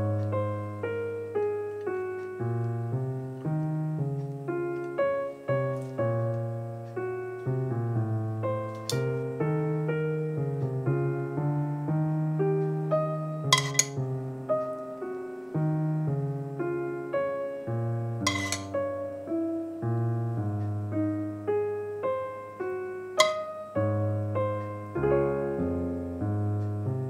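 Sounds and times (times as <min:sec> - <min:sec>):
piano music: 0:00.0 - 0:27.0.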